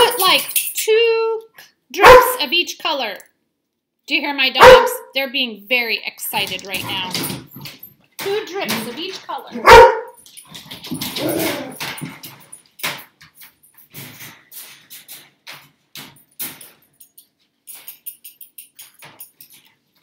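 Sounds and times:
dogs barking: 0:02.0 - 0:02.4, 0:04.6 - 0:05.1, 0:09.6 - 0:10.2
dogs whining: 0:10.9 - 0:12.0.

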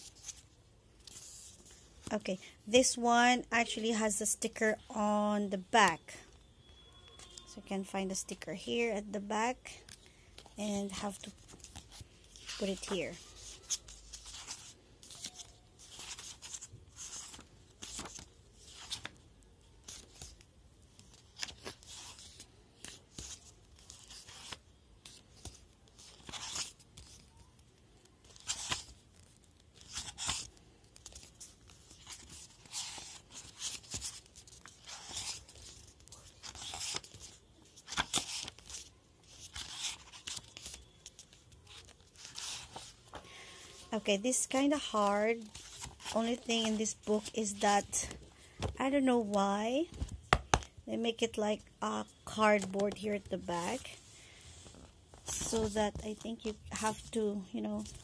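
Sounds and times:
paper pages turning: 0:00.0 - 0:01.8, 0:09.8 - 0:48.7, 0:52.2 - 0:57.2.

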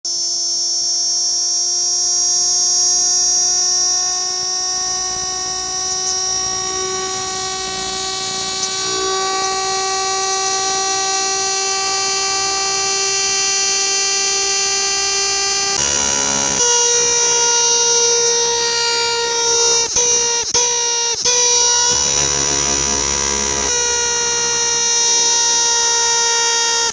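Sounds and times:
cicada whine: 0:00.1 - 0:26.9.

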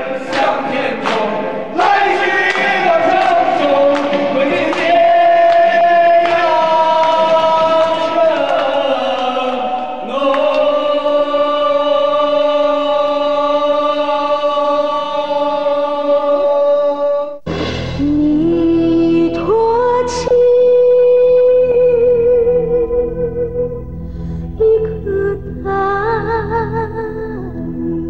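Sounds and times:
men singing karaoke: 0:00.0 - 0:17.3.

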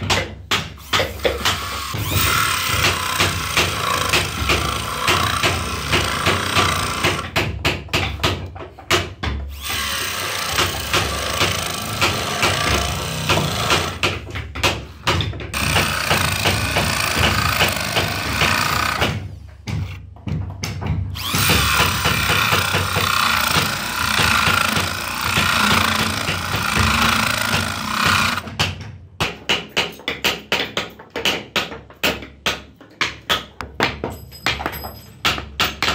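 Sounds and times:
electric drill grinding wood: 0:01.4 - 0:07.2, 0:09.5 - 0:14.0, 0:15.6 - 0:19.1, 0:21.2 - 0:28.4.

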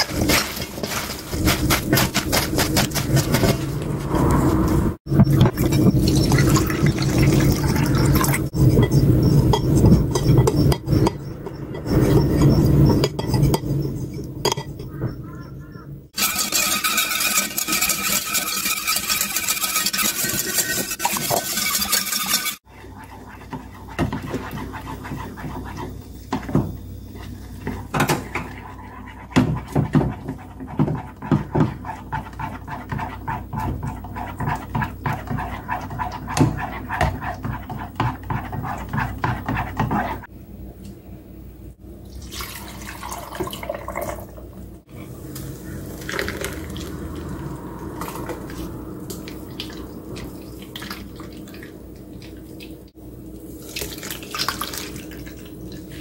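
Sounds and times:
wooden spatula scraping a pot: 0:00.0 - 0:04.8, 0:16.2 - 0:26.6, 0:27.2 - 0:40.3
paste stirred in a metal pot: 0:16.2 - 0:26.5, 0:27.2 - 0:40.3
water pouring into a bowl: 0:42.2 - 0:44.3, 0:46.0 - 0:47.4, 0:53.6 - 0:55.5.

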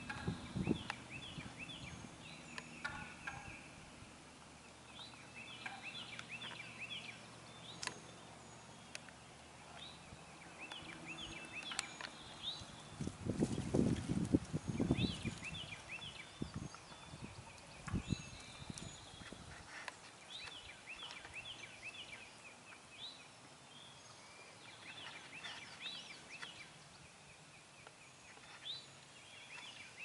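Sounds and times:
turkeys gobbling: 0:02.8 - 0:03.7.

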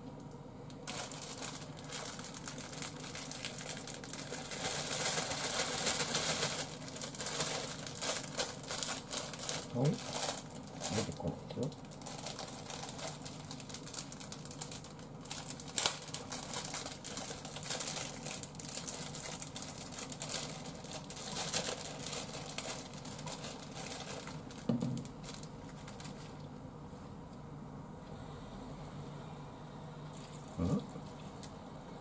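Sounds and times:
plastic packet crinkling: 0:00.8 - 0:26.5.

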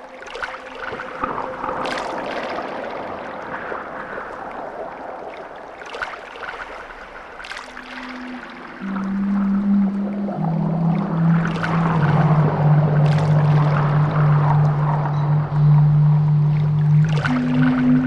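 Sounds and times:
rushing water with splashes: 0:00.0 - 0:18.0
faint low steady tone: 0:07.8 - 0:18.0.

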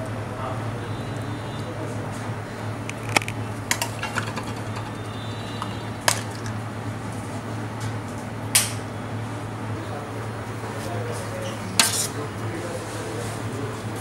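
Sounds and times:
kitchen utensils clinking: 0:03.0 - 0:06.5, 0:11.4 - 0:12.2.

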